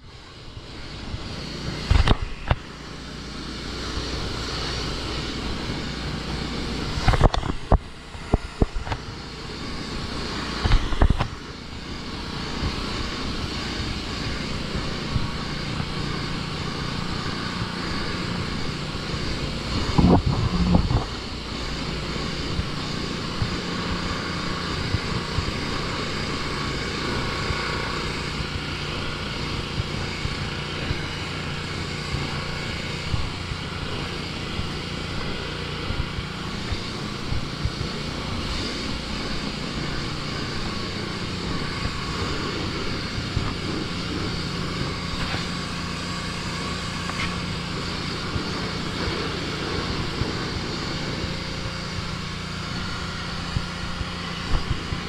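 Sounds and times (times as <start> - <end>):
pressure washer spraying wood: 0.0 - 55.0.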